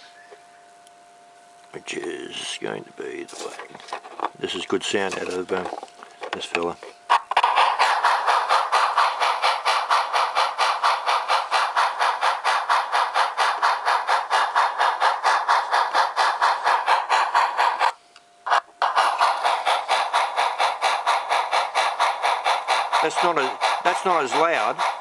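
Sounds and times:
model steam locomotive chuffing: 1.9s - 25.0s.

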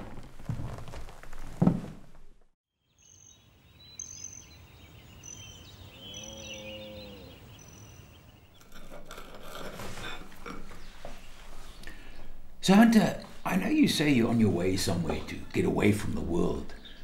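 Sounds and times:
bird chirping: 2.8s - 9.4s, 10.4s - 17.0s
cow mooing: 5.9s - 7.5s.

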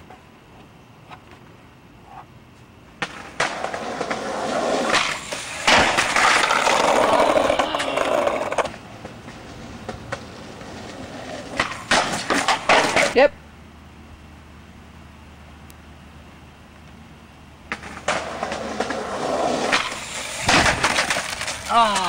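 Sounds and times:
skateboard wheels rolling: 0.0s - 13.3s, 16.6s - 22.0s
skateboard clacks: 3.0s - 13.2s, 17.7s - 22.0s.

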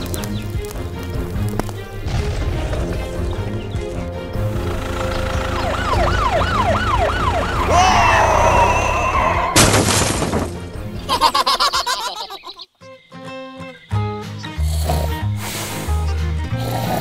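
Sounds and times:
background music: 0.0s - 17.0s
police siren wailing: 4.6s - 9.6s.

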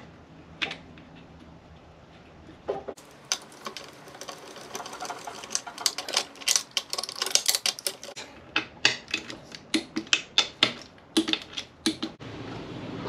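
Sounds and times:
hand tool clicking and rattling: 3.0s - 8.2s, 8.8s - 12.2s.

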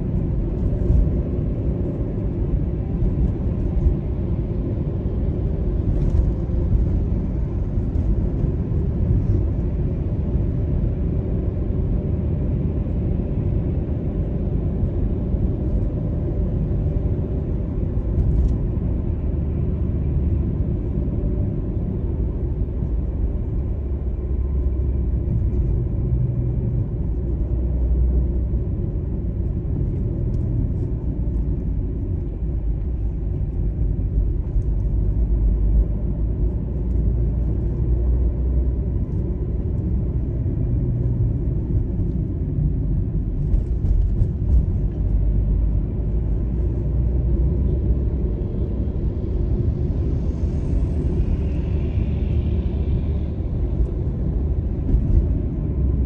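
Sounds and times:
car interior road rumble: 0.0s - 56.0s.

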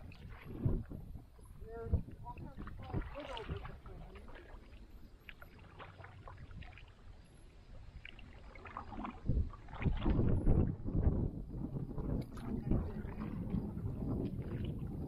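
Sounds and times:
paddle dipping through water: 0.0s - 15.0s
small splashes and drips: 2.1s - 10.7s, 12.1s - 15.0s.

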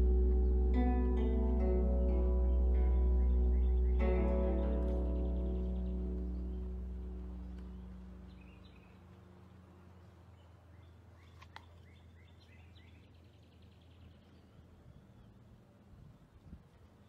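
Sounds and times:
bird trill: 0.0s - 9.0s
low steady hum: 0.0s - 11.2s
small birds chirping: 0.0s - 15.5s.

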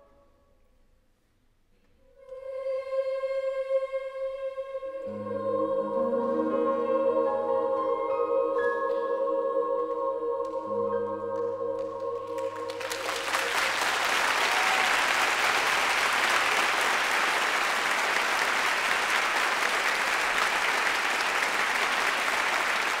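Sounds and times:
choir holding chord: 2.2s - 23.0s
audience applauding: 11.8s - 23.0s.

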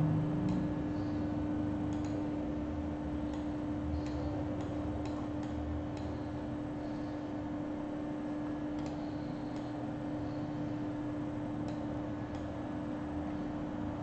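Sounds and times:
steady electrical hum: 0.0s - 14.0s
computer mouse clicks: 1.9s - 2.2s, 8.7s - 9.8s.

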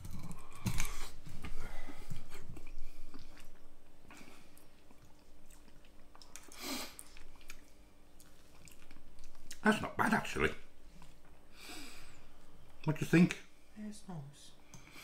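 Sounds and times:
person chewing food: 0.0s - 9.6s
breathy hiss: 11.5s - 12.4s.

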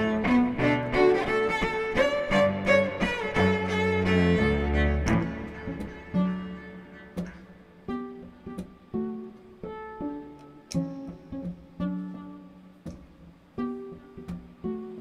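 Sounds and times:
plucked string notes: 0.0s - 15.0s.

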